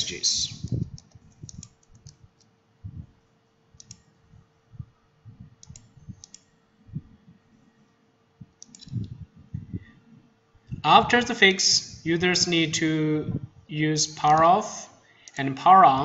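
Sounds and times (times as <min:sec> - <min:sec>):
faint steady hum: 0:00.0 - 0:16.0
quiet computer clicks: 0:00.6 - 0:02.6, 0:03.8 - 0:04.1, 0:05.6 - 0:06.6, 0:08.4 - 0:09.2
soft low thumps: 0:08.4 - 0:10.0.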